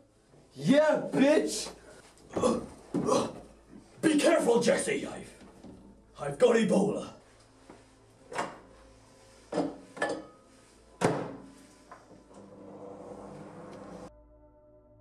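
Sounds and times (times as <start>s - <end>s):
microwave door clunks and knocks: 11.0s - 11.5s
microwave oven humming: 12.2s - 14.1s.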